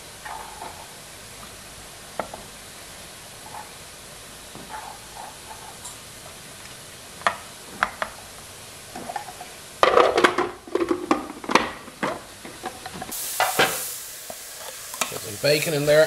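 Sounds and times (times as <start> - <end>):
hiss: 13.1 - 16.0.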